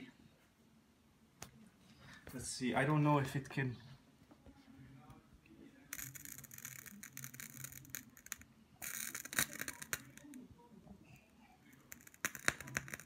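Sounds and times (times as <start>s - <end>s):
candle crackling and sizzling: 5.9s - 10.5s, 11.6s - 13.0s.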